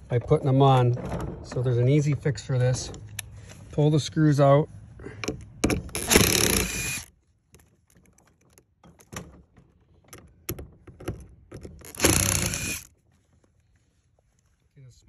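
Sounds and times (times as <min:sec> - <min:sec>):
impact driver backing out screws: 0:05.2 - 0:07.1, 0:11.6 - 0:12.9.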